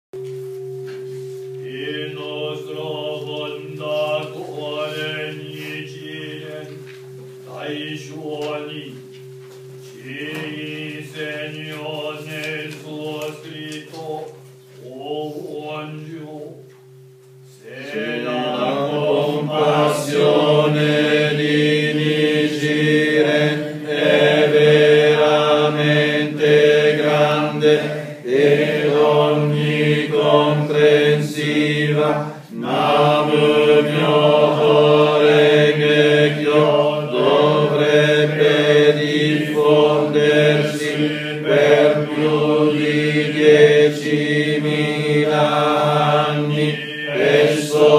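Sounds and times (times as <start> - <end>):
congregation chanting in unison: 1.6 - 6.8, 7.5 - 9.0, 10.0 - 16.6, 17.6 - 47.9.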